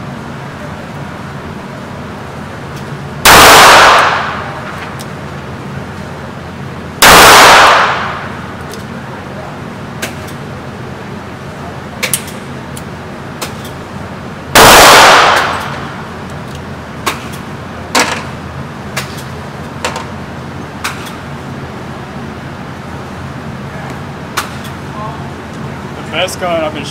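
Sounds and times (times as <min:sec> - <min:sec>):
fainter distant gunshots: 0:03.2 - 0:04.6, 0:07.0 - 0:08.4, 0:14.6 - 0:16.0
loud handgun shot echoing: 0:03.2 - 0:04.6, 0:07.0 - 0:08.4, 0:14.6 - 0:16.0.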